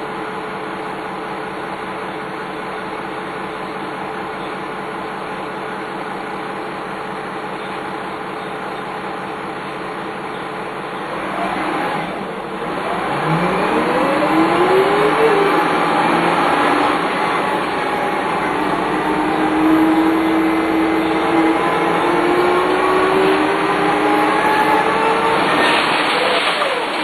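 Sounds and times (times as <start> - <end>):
bus accelerating: 0.0 - 27.0
gearbox whine: 7.1 - 27.0.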